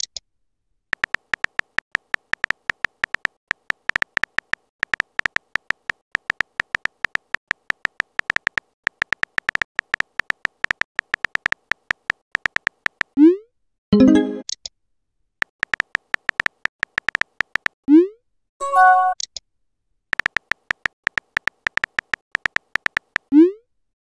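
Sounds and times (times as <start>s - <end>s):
phone keyboard tap clicks: 1.0s - 13.2s, 15.5s - 17.8s, 20.2s - 23.3s.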